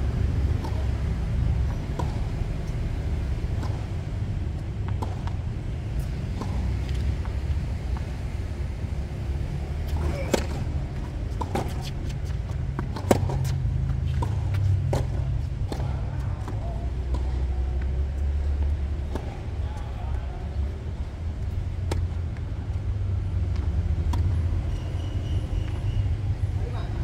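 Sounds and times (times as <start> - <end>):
tennis ball bouncing: 0.4 - 8.6, 9.6 - 19.6, 21.4 - 22.9, 23.5 - 24.3
tennis ball hit by rackets: 1.6 - 2.4, 3.4 - 4.0, 4.8 - 5.4, 6.0 - 7.4, 9.9 - 17.9, 21.8 - 22.1.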